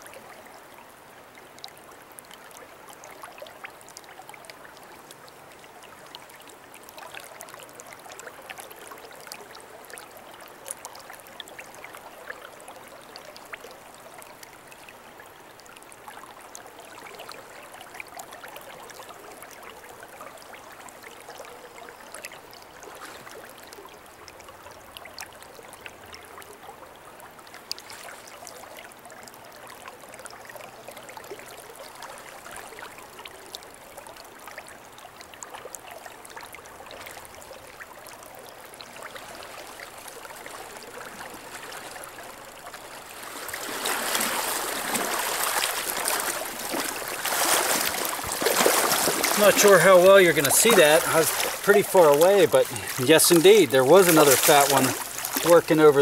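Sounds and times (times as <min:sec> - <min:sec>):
small water splashes: 0:00.0 - 0:56.0
river water rushing: 0:36.3 - 0:56.0.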